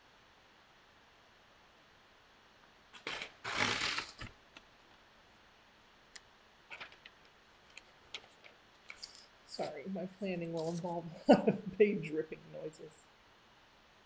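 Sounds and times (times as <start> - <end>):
paper rustling: 3.0 - 4.3, 6.7 - 9.8, 10.4 - 11.1
paper tearing: 3.0 - 4.3.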